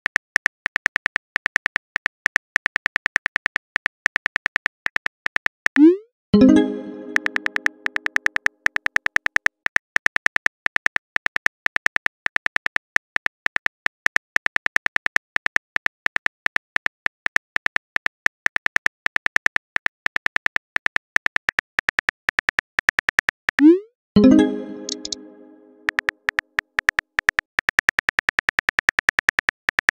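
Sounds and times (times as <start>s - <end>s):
phone keyboard typing clicks: 6.5s - 9.8s, 23.6s - 26.1s.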